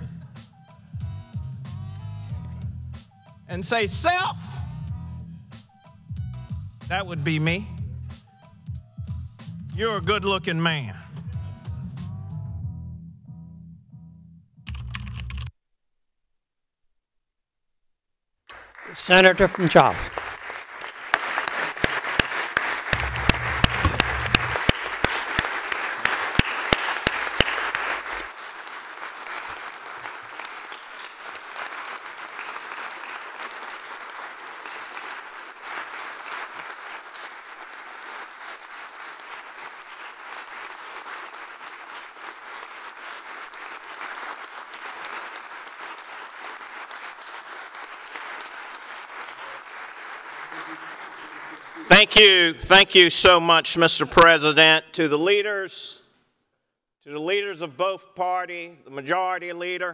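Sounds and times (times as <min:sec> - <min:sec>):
audience applauding: 0:18.5 - 0:53.4.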